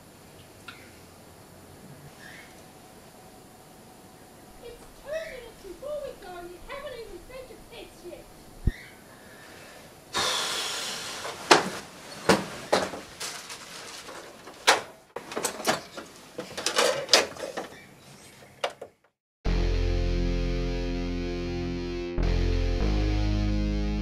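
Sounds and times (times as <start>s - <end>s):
distorted electric guitar music: 4.5s - 8.7s, 19.5s - 24.0s
rustling: 11.4s - 16.2s.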